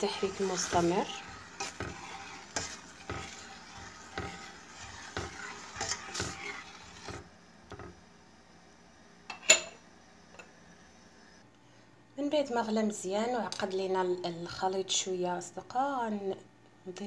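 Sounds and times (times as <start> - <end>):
metal spoon scraping a saucepan: 0.0 - 7.3.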